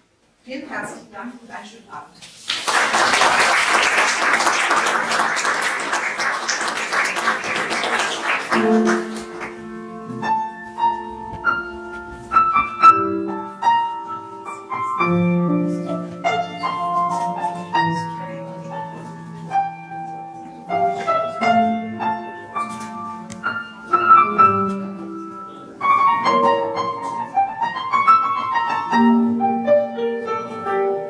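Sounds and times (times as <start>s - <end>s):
audience applauding: 2.5s - 9.7s
slow piano melody: 3.5s - 31.0s.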